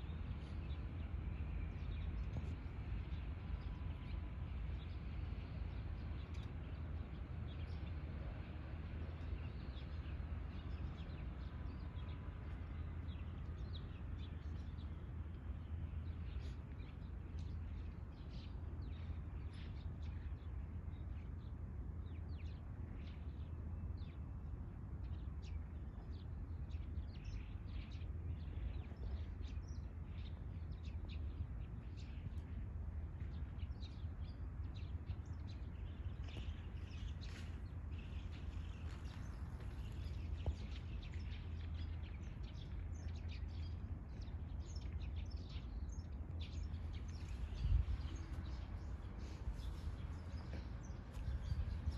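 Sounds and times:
low outdoor rumble: 0:00.0 - 0:51.9
small birds chirping: 0:25.1 - 0:51.9.

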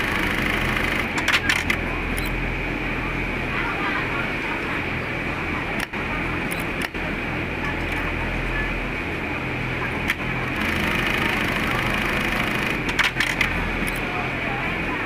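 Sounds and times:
sewing machine running: 0:00.0 - 0:01.8, 0:10.3 - 0:14.0.

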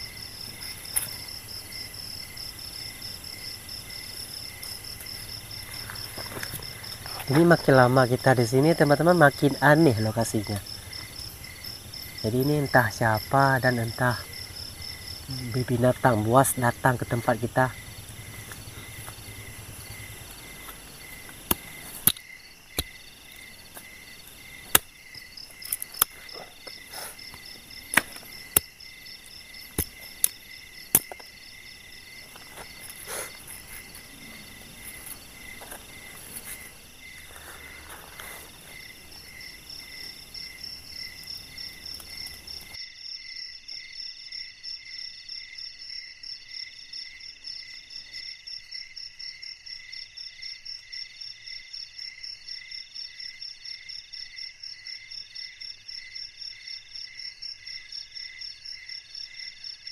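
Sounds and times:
crickets and insects trilling: 0:00.0 - 0:59.9.

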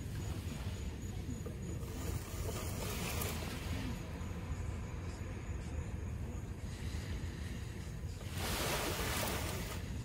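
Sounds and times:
surf washing on shore: 0:08.1 - 0:10.0.

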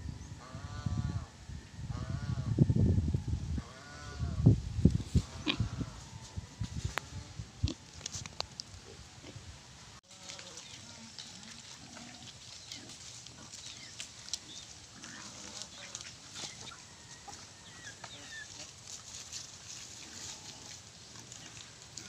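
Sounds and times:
animals pecking and chewing: 0:10.1 - 0:22.0.

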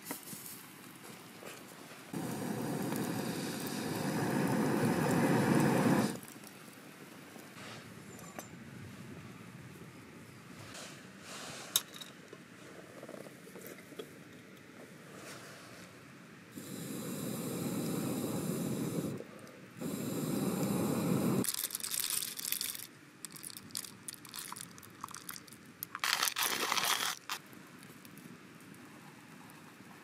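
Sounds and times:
hand coffee mill grinding beans: 0:21.4 - 0:27.4.

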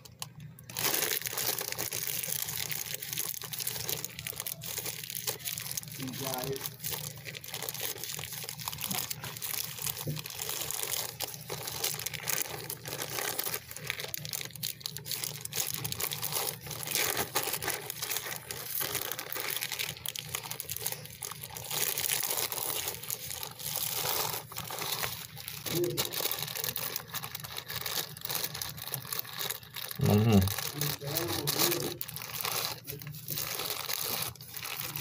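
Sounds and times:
plastic sheeting crinkling: 0:00.0 - 0:35.0.

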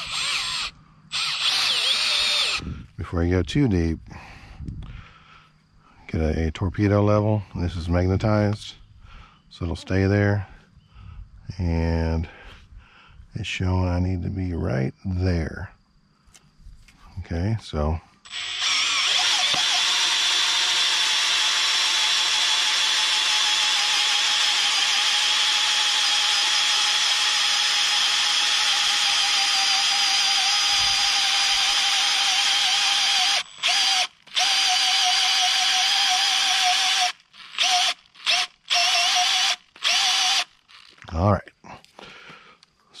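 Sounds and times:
cordless drill boring into wood: 0:00.0 - 0:02.8, 0:18.2 - 0:41.0.

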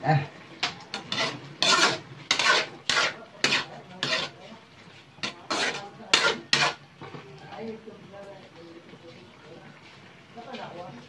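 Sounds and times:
metal spatula scraping a pan: 0:00.6 - 0:06.9.

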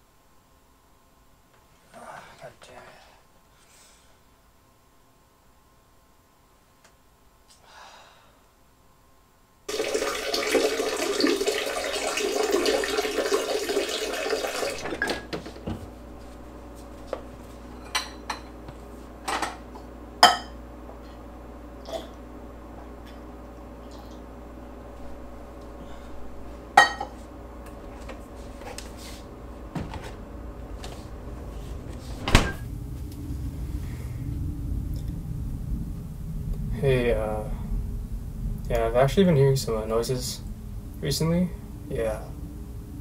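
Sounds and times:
refrigerator hum: 0:00.0 - 0:43.0
water running from tap: 0:09.7 - 0:15.2.

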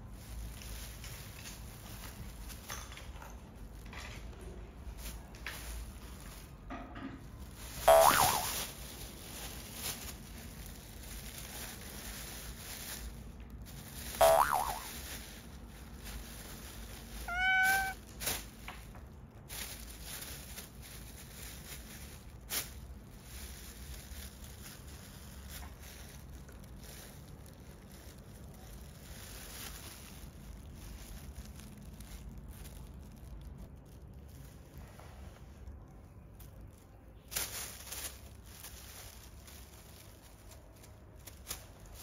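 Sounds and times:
plastic bag crinkling: 0:00.0 - 0:34.9, 0:35.6 - 0:42.0
kitten meowing: 0:17.2 - 0:18.0.

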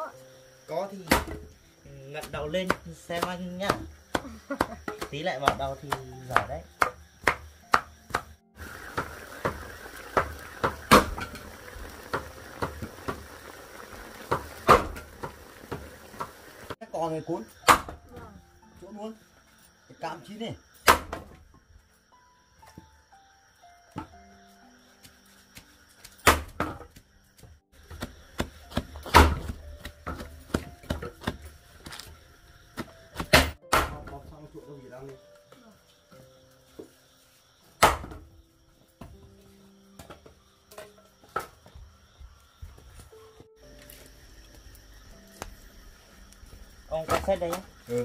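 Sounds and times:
knife chopping greens on board: 0:02.2 - 0:08.3
meat sizzling in a wok: 0:07.0 - 0:17.7.

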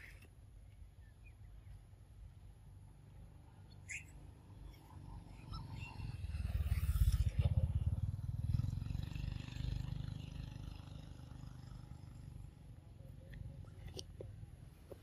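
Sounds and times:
passing vehicle engine rumble: 0:03.9 - 0:13.9.

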